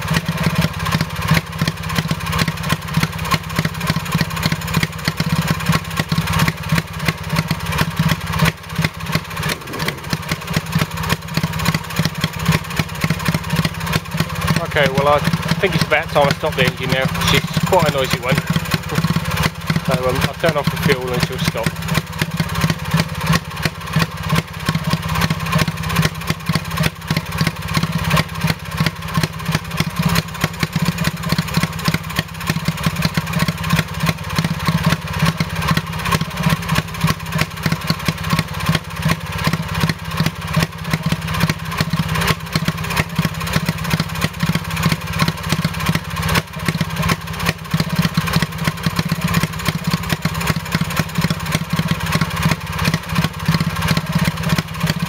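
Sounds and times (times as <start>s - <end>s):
stationary engine running: 3.0s - 26.6s.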